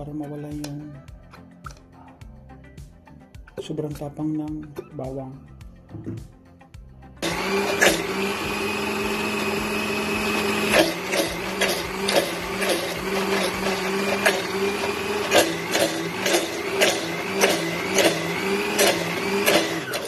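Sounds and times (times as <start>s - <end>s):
blender motor running: 7.2s - 20.0s.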